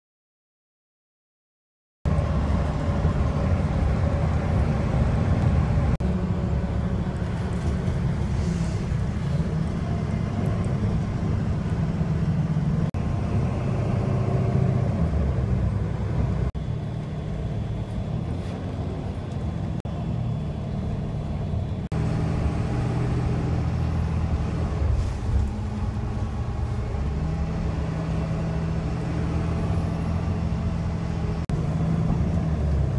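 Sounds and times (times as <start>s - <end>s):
engine hum: 2.1s - 32.9s
vehicle rumble from inside cabin: 2.1s - 32.9s.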